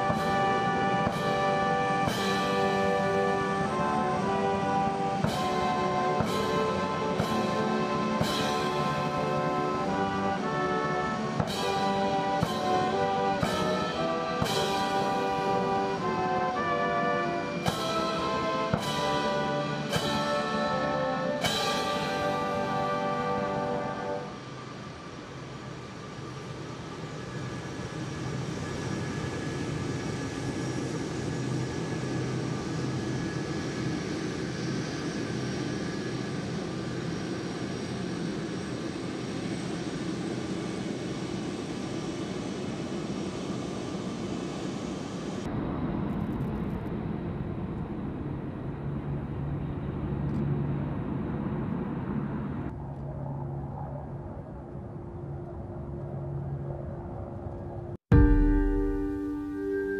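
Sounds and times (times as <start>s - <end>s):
jet engines running: 0.0s - 59.9s
jet flying overhead: 0.0s - 59.9s.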